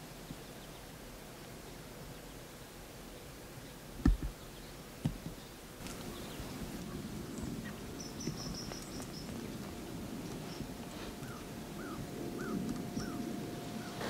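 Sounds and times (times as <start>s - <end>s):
steady low noise: 0.0s - 14.0s
faint bird chirps: 3.6s - 14.0s.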